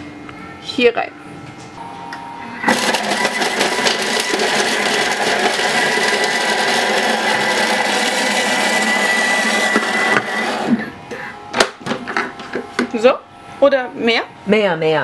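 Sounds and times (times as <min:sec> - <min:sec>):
food processor blade whirring: 0:02.7 - 0:10.9.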